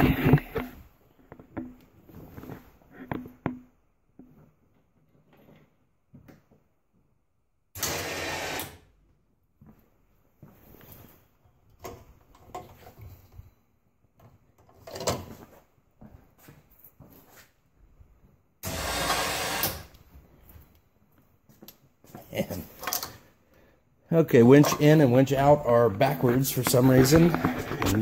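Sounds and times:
electric winch motor running: 7.8s - 8.8s, 18.6s - 19.9s
footsteps: 24.3s - 28.0s.

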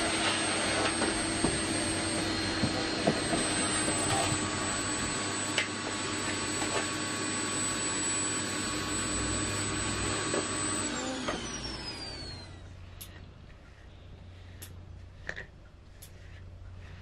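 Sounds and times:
electric motor whining: 0.0s - 12.8s
motor spinning down: 0.0s - 12.8s.

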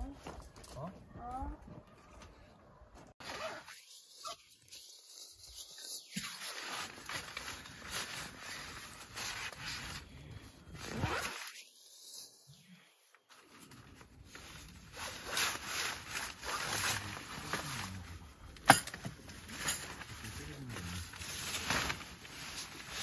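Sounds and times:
zipper being pulled: 10.8s - 11.6s
fabric rustling: 19.2s - 23.0s.

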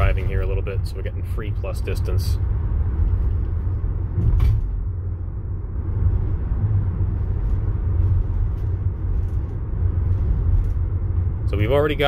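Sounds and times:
road and tyre rumble: 0.0s - 12.0s.

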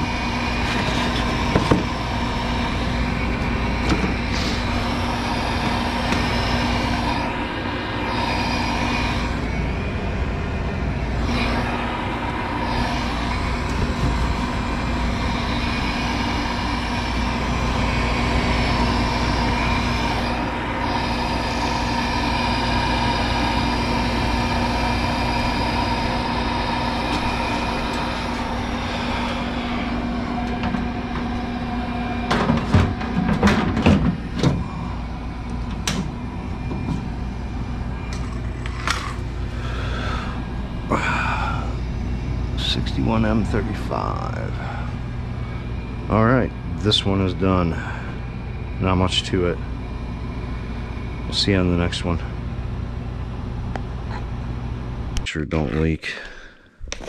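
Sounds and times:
furnace humming: 0.0s - 57.0s.

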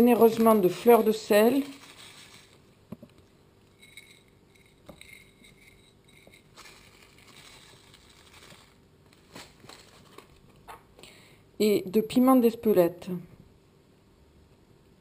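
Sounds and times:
plastic bag rustling: 0.0s - 2.8s, 6.4s - 10.7s.

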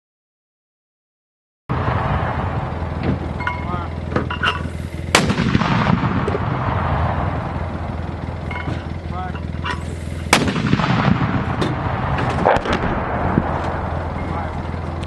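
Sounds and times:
mortar blast: 1.7s - 3.0s, 5.1s - 8.2s, 10.2s - 14.9s
rumbling echo: 1.7s - 15.0s.

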